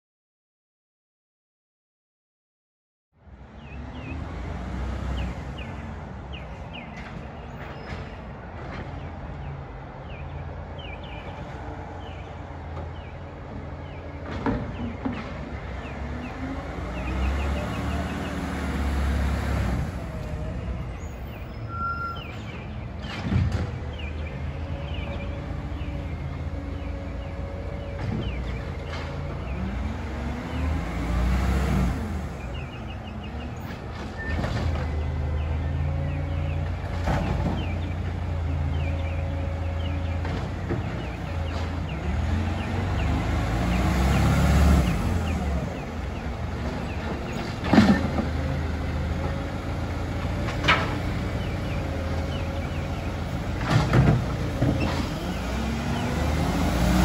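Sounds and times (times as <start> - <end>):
garbage truck diesel engine revving: 15.8 - 21.3, 23.6 - 57.0.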